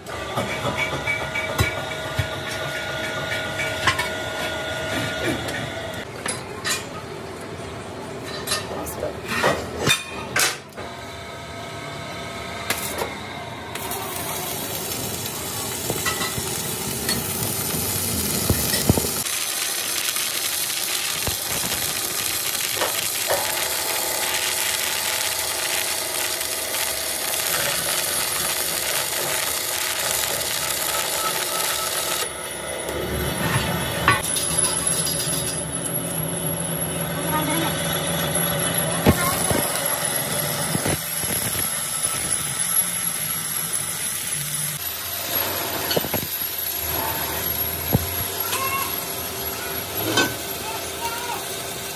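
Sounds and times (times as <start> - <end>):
welding arc crackling hiss: 12.6 - 13.1, 13.7 - 32.7, 34.0 - 36.6, 37.4 - 51.9.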